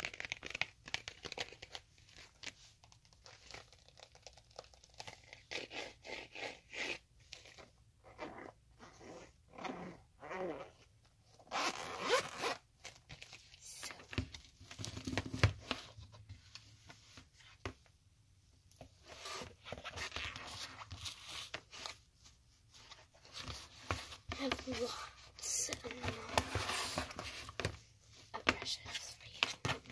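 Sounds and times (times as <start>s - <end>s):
zipper being pulled open: 5.0s - 12.6s, 19.0s - 21.9s.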